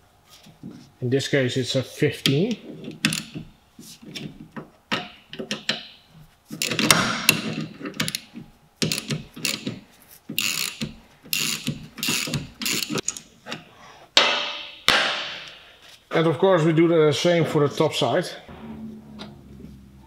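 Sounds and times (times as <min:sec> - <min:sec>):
socket ratchet clicking: 0:08.8 - 0:09.8, 0:10.4 - 0:13.1.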